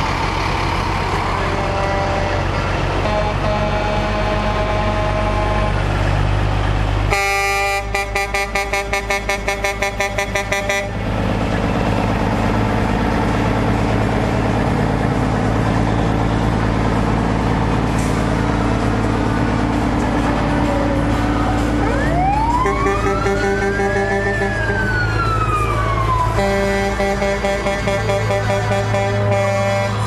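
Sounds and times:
low engine rumble: 0:00.0 - 0:30.0
truck horn tooting: 0:01.2 - 0:06.0, 0:07.1 - 0:11.1, 0:22.6 - 0:24.8, 0:26.4 - 0:30.0.

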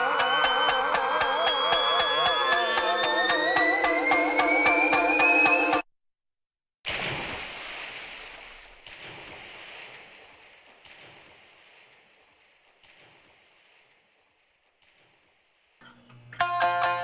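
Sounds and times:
rushing water: 0:06.9 - 0:17.0.

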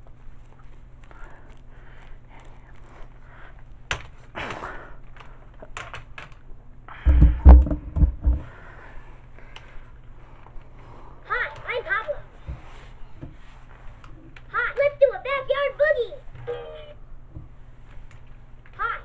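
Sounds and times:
low thumps on tile floor: 0:07.0 - 0:08.5.

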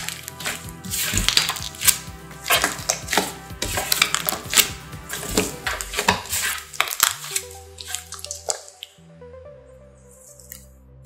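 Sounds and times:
slime wet clicks and pops: 0:06.8 - 0:08.9.

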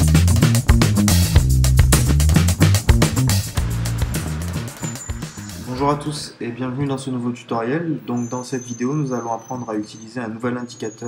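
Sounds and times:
music with bass line: 0:00.0 - 0:06.0
sharp drum hits: 0:00.1 - 0:05.9.

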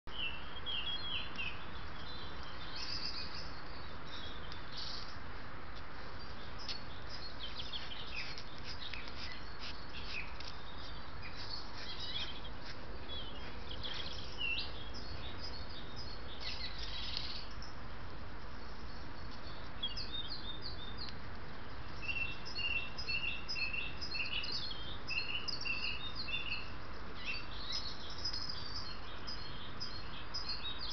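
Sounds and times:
birds singing and chirping: 0:00.1 - 0:05.2, 0:06.0 - 0:30.9
steady background hiss: 0:00.1 - 0:30.9.

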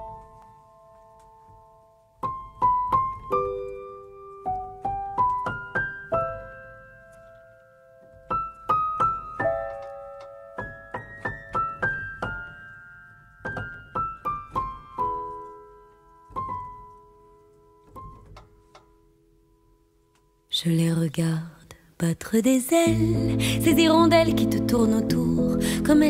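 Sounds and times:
slow solo piano melody: 0:00.0 - 0:20.0.

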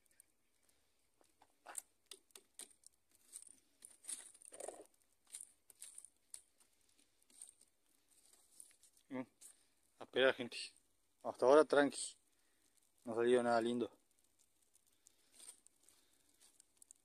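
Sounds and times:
fire crackling and popping: 0:00.0 - 0:17.0.

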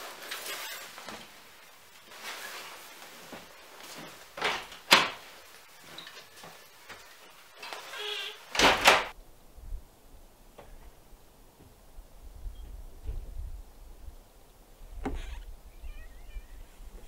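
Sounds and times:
loud scraping: 0:00.0 - 0:03.3
shuffling footsteps: 0:00.0 - 0:08.6
rustling: 0:00.0 - 0:09.2
short squeak: 0:07.6 - 0:08.5.

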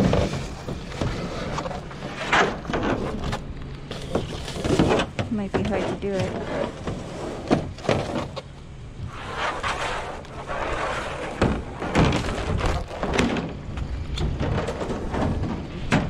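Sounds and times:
rustling: 0:00.0 - 0:16.0
thumps and knocks on metal dumpster: 0:11.2 - 0:16.0.

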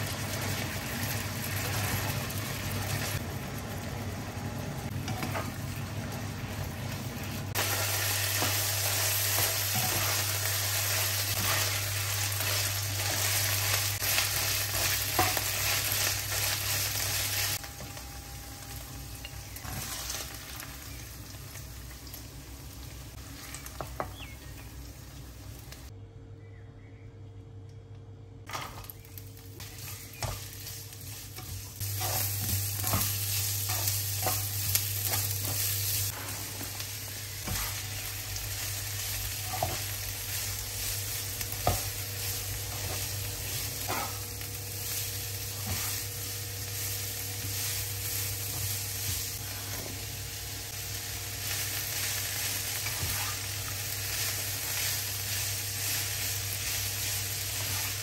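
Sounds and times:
vegetables sizzling in oil: 0:00.0 - 0:25.9, 0:28.5 - 0:58.0.

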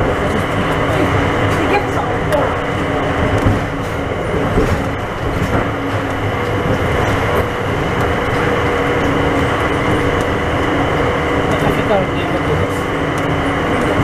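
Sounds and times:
faint steady whine: 0:00.0 - 0:14.0
people mover running rumble: 0:00.0 - 0:14.0.

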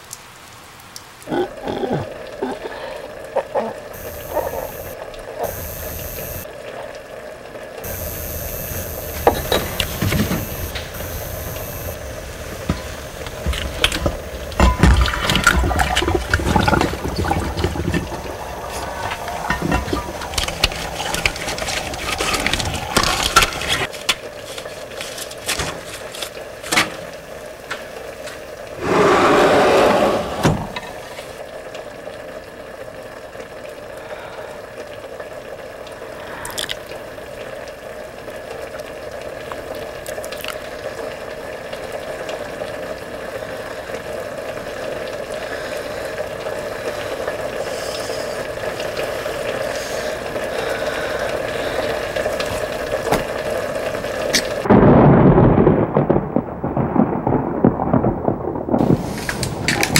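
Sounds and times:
water pouring: 0:01.2 - 0:27.3, 0:30.7 - 0:56.1
steady hum: 0:02.2 - 0:06.6, 0:07.7 - 0:23.9
water splashing in glass jars: 0:12.6 - 0:23.9, 0:40.0 - 0:40.7.

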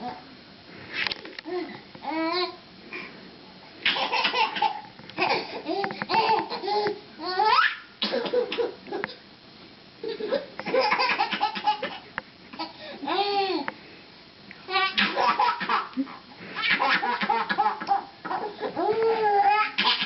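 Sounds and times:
baby laughing and squealing: 0:10.0 - 0:12.0, 0:14.7 - 0:20.0.

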